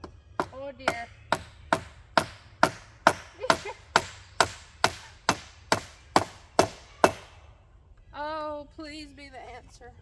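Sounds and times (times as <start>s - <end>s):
hammering a nail into wood: 0.0s - 7.3s.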